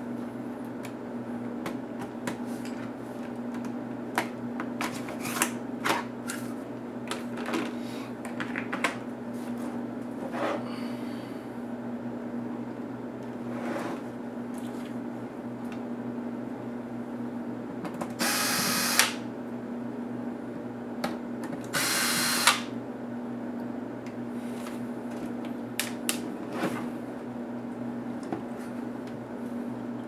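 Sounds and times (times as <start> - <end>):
electric screwdriver running: 18.2 - 19.2, 21.8 - 22.7.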